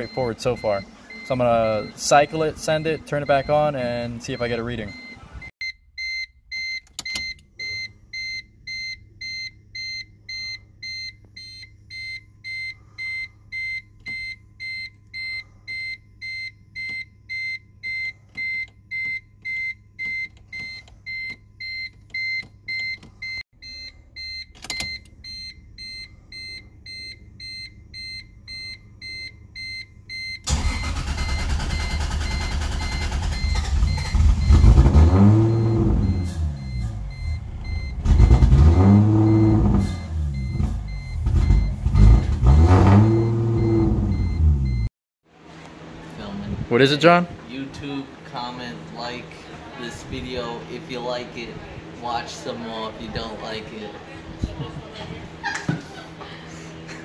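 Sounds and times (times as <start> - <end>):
car warning beeper: 0.0 - 44.9.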